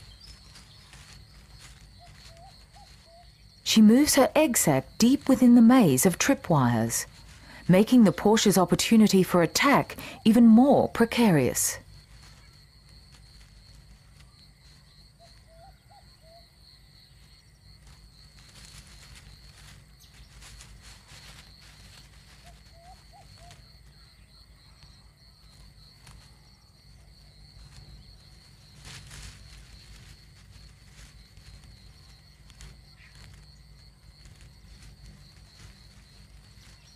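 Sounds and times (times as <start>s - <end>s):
faint chirps: 0.0s - 3.8s
soft rustles: 0.0s - 4.3s, 5.0s - 8.6s, 9.5s - 16.0s, 17.1s - 36.9s
high insect drone: 0.0s - 36.9s.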